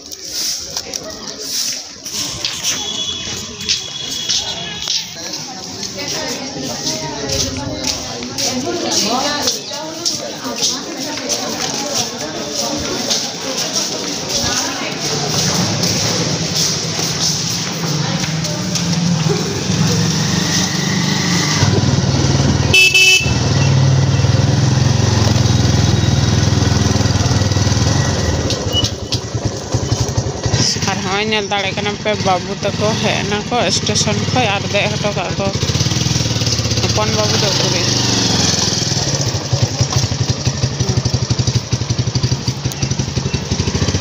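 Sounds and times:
motorcycle horn honk: 2.6s - 4.9s, 22.7s - 23.9s
motorcycle engine running: 12.7s - 44.0s.

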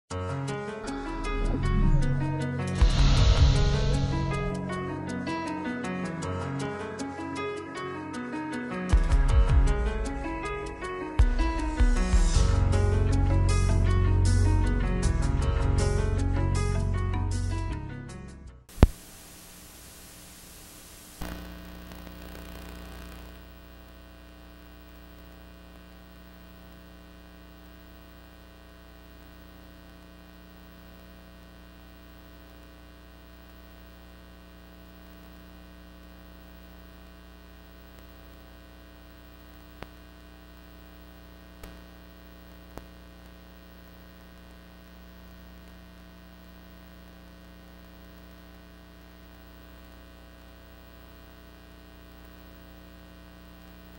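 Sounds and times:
electrical mains hum: 0.9s - 4.9s, 18.7s - 53.9s.

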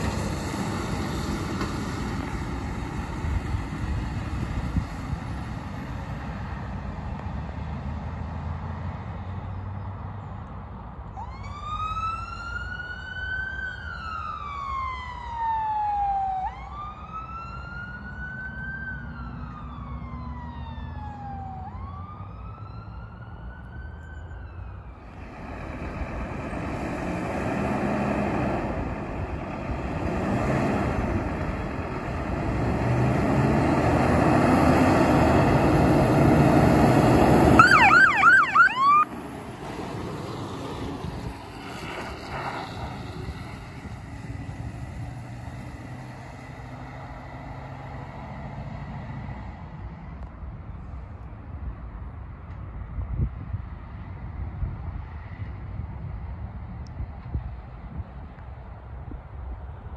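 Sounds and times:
diesel engine approaching: 0.0s - 59.9s
fire engine wail siren: 11.1s - 25.3s, 30.9s - 49.4s
yelping siren chirps: 37.6s - 39.1s.

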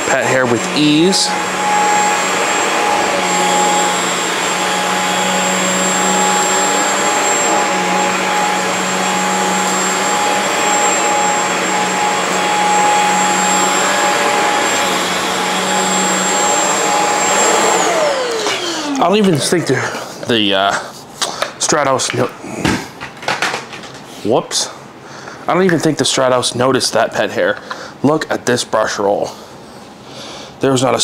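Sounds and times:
vacuum cleaner motor whine: 0.0s - 20.0s.

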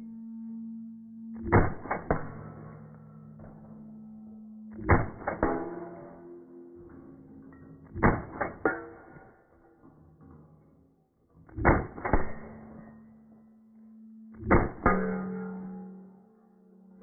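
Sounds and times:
steady ringing tone: 0.0s - 7.9s, 12.5s - 17.0s.

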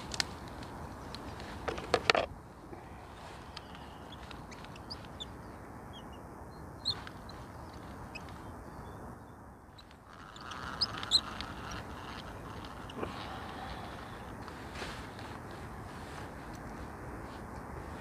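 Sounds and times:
birds chirping: 2.7s - 14.3s.

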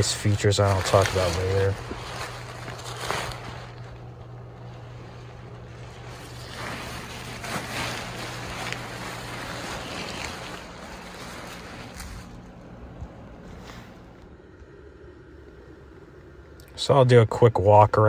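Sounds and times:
nylon fabric rustling: 0.0s - 14.2s
steady low hum: 0.0s - 18.0s.

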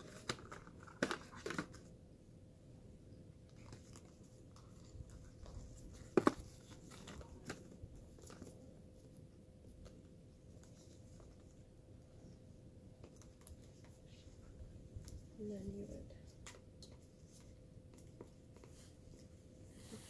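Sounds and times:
plastic tubing and packaging rustling: 0.0s - 2.0s, 3.5s - 12.0s.

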